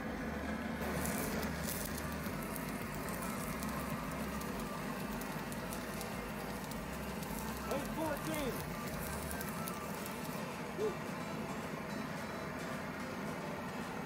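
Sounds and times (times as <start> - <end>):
welding arc crackling: 0.2 - 12.0.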